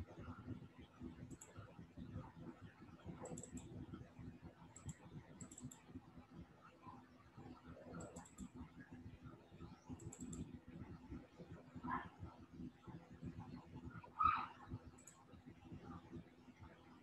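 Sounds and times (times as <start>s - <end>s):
faint steady hum: 0.0s - 17.0s
computer keys clicking: 1.3s - 1.6s, 3.2s - 3.8s, 4.7s - 5.8s, 8.0s - 8.6s, 10.0s - 10.5s, 15.0s - 15.2s.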